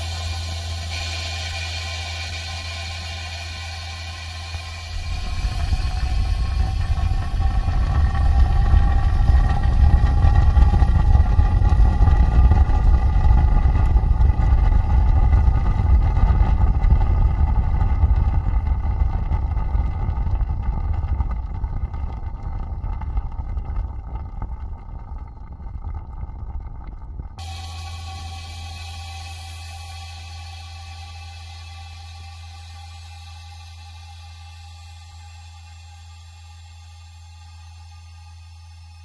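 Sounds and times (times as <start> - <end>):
vacuum pump running: 0.0 - 39.0.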